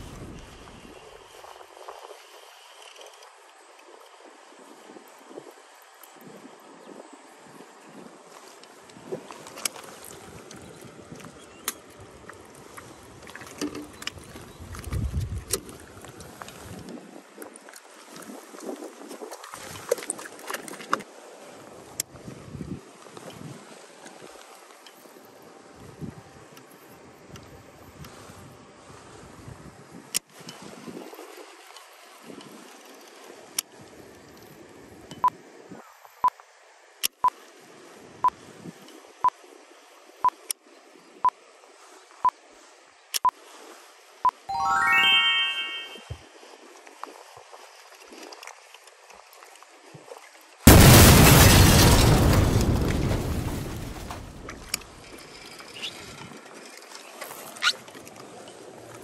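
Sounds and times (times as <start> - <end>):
water lapping against boat hull: 12.0 - 22.4
short high electronic beep: 44.5 - 46.2.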